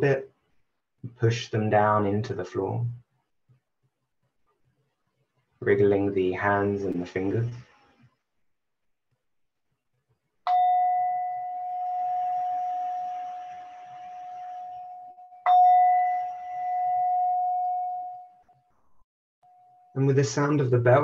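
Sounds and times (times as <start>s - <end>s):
meditation bell ringing: 10.5s - 18.5s, 19.4s - 20.1s.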